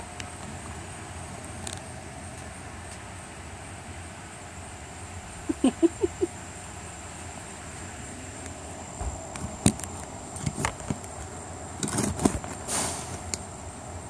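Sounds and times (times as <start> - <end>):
outdoor background hum: 0.0 - 14.0
dog breathy puff: 12.7 - 13.2.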